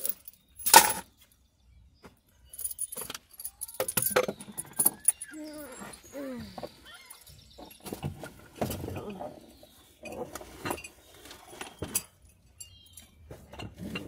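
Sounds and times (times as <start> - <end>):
metallic jingling and clicking: 0.0 - 1.1, 2.4 - 8.4, 10.0 - 13.3.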